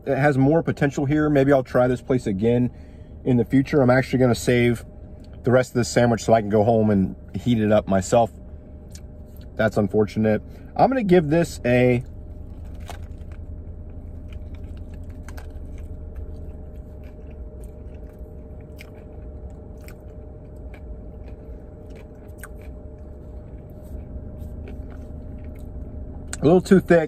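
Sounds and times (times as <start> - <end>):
steady low hum: 0.0 - 27.0
person chewing crunchy sandwich: 12.0 - 26.5.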